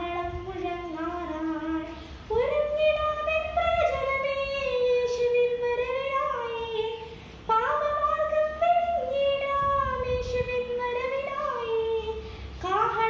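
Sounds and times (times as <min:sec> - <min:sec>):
girl singing unaccompanied: 0:00.0 - 0:13.0.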